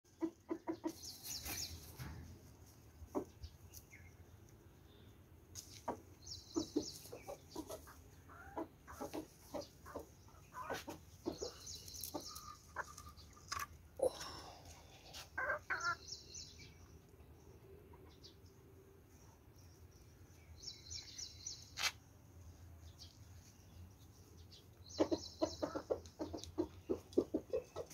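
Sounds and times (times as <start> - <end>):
chickens clucking: 0.1 - 3.9, 5.5 - 14.0, 15.1 - 16.2, 24.4 - 27.9.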